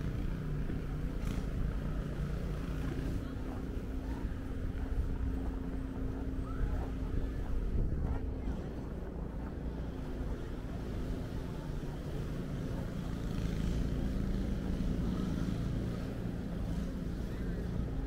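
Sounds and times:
city street traffic rumble: 0.0s - 18.0s
wind buffeting microphone: 6.6s - 9.2s.

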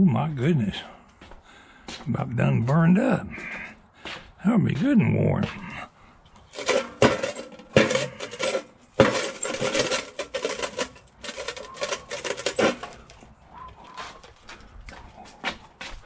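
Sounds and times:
coals clinking against steel: 6.4s - 14.4s
metal chimney starter clanking: 6.5s - 13.2s.

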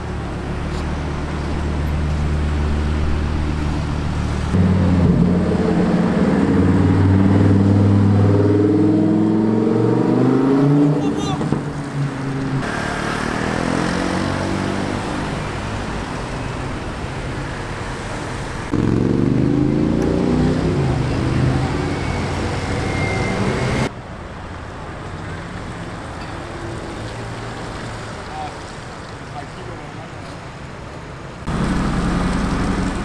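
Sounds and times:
cars accelerating past: 3.6s - 16.7s, 18.6s - 23.9s.

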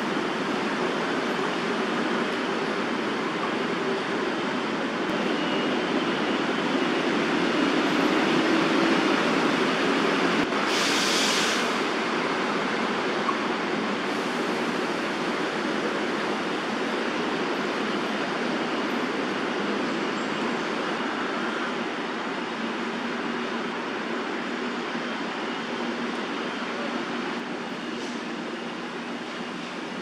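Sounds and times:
distant city traffic: 0.0s - 30.0s
bright hiss burst: 10.7s - 11.8s.

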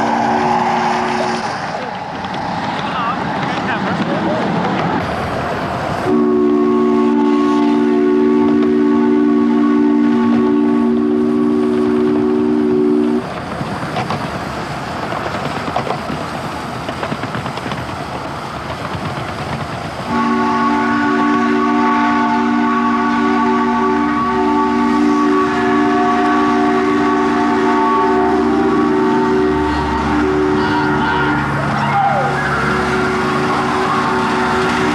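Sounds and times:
steam locomotive exhaust: 0.0s - 2.6s, 5.0s - 14.4s, 17.2s - 34.9s
rail clatter: 0.0s - 6.1s, 11.4s - 20.2s, 28.7s - 34.9s.

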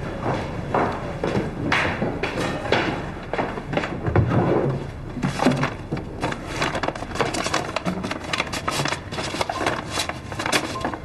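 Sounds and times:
paper bag crinkling: 5.3s - 11.0s.

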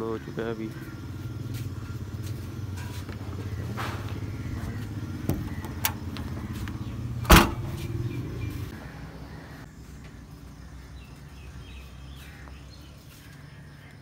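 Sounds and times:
vehicle engine idling: 0.0s - 9.8s
car boot lid shutting: 5.2s - 6.1s, 7.2s - 7.9s.

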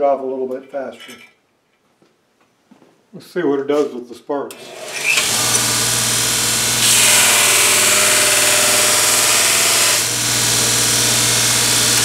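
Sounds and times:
electric motor humming: 4.5s - 12.0s
steel grinding on abrasive belt: 4.6s - 12.0s.

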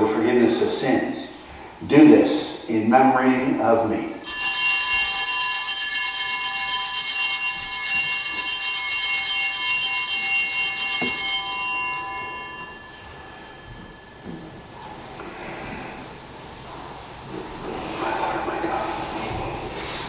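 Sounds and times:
small handbells jingling: 4.1s - 14.6s.

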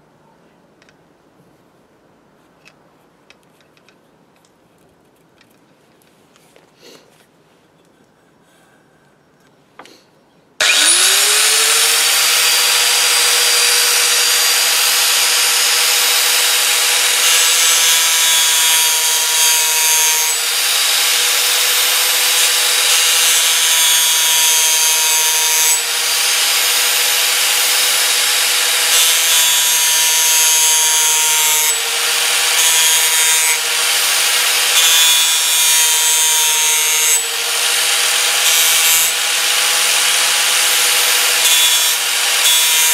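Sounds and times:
angle grinder grinding metal: 10.6s - 42.9s.

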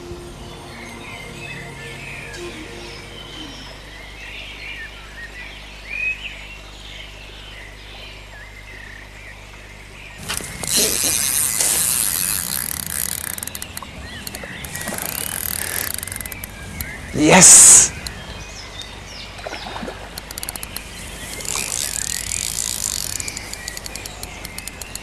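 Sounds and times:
birds chirping: 0.0s - 5.4s, 10.1s - 25.0s
rapid clicking: 10.2s - 16.9s, 20.2s - 25.0s
fish splashing in water: 10.2s - 17.1s, 17.9s - 25.0s.

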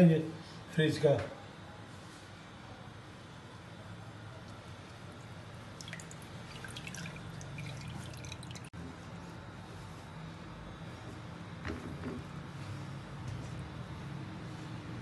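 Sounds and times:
low steady hum: 0.0s - 15.0s
water dripping into a bowl: 4.9s - 8.7s.

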